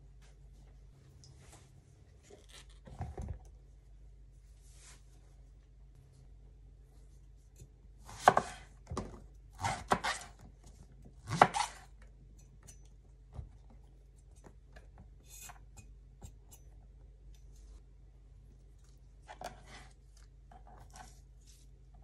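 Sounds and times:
knife chopping on wooden board: 8.1 - 8.6, 9.6 - 10.3, 11.2 - 11.8.

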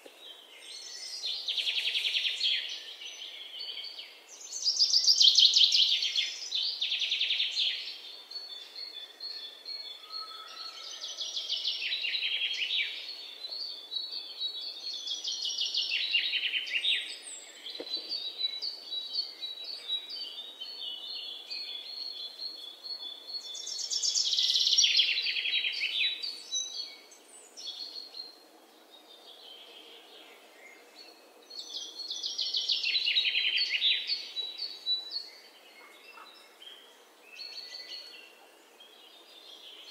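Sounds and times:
songbird trills: 29.1 - 39.9.

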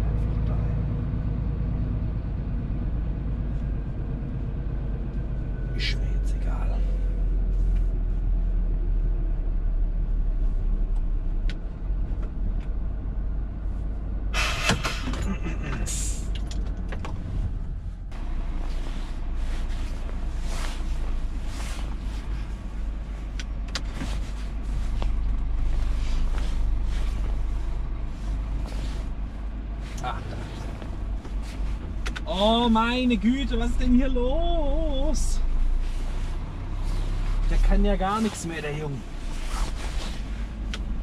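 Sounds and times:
truck diesel engine running: 0.0 - 41.0.

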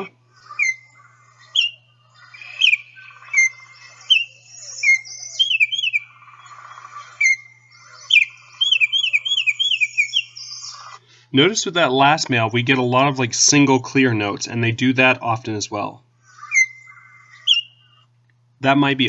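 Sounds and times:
bird singing whistled notes: 0.5 - 11.0, 16.4 - 18.0.

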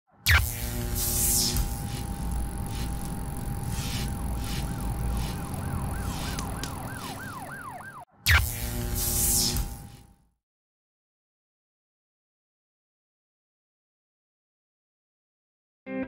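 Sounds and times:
electrical buzz with crackles: 0.3 - 10.2
siren-like wail: 1.2 - 8.2.

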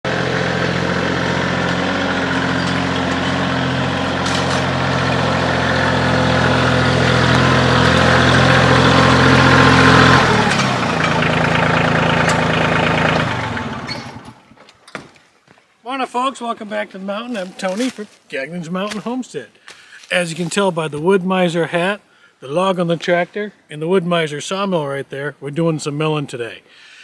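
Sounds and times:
tractor engine running: 0.0 - 14.6.

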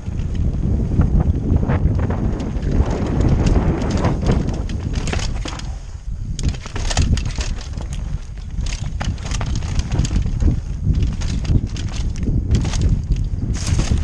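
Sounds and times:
bike rattling over stones: 0.0 - 14.0
wind rumble on microphone: 0.0 - 14.0.

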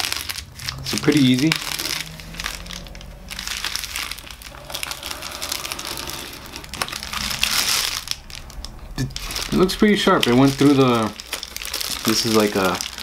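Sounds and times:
plastic rustling and clicking: 6.7 - 13.0.

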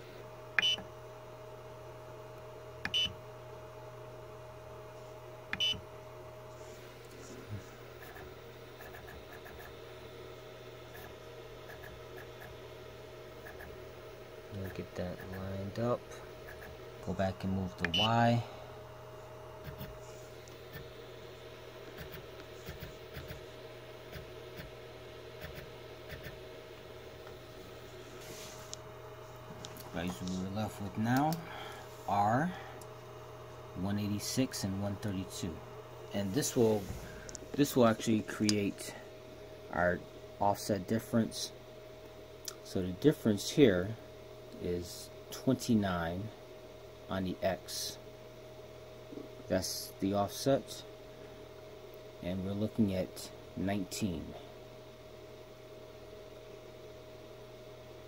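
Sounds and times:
faint steady hum: 0.0 - 58.0
short buzzer beeps: 17.9 - 18.1.

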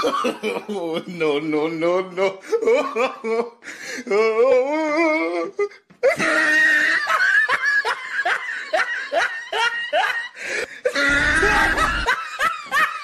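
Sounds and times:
loud laughing bursts: 6.2 - 13.0.

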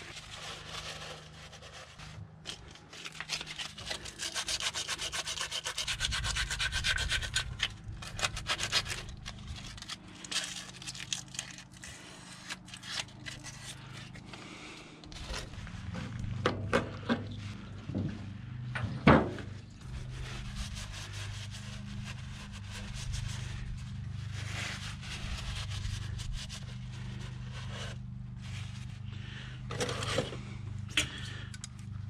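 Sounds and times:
sandpaper rubbing on metal: 3.0 - 11.2, 19.8 - 29.0.

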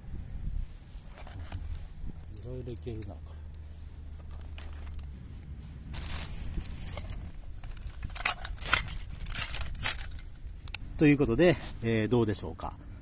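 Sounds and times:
fabric rustling and handling: 3.6 - 10.4.

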